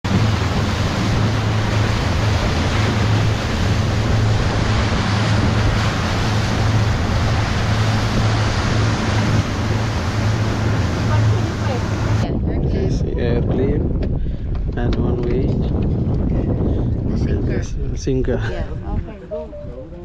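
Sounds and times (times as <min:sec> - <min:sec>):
motorboat engine drone: 0:00.0 - 0:13.0
water along hull: 0:00.0 - 0:20.0
wind on microphone: 0:00.0 - 0:20.0.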